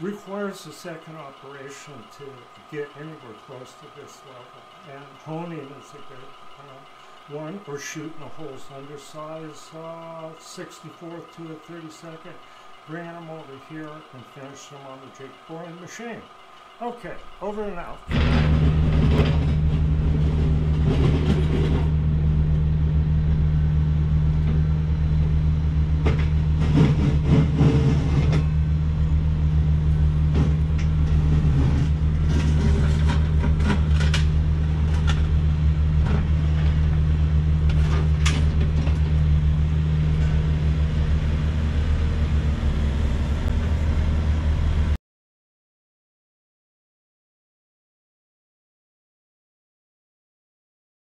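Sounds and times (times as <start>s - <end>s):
diesel engine drone: 0.0s - 45.0s
machinery knocks and clanks: 0.1s - 22.1s, 26.0s - 28.7s, 30.2s - 41.0s.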